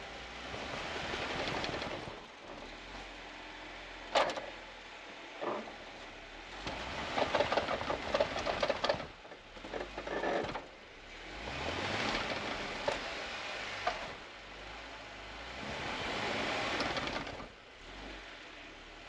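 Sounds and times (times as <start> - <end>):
tires churning through snow: 0.0 - 19.0
engine revving: 6.5 - 18.8.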